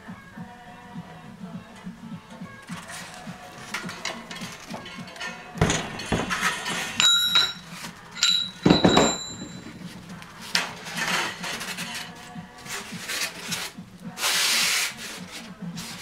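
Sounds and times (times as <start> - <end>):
metal case knocking and clanking: 3.6 - 11.6
foam blocks scraping: 9.6 - 16.0.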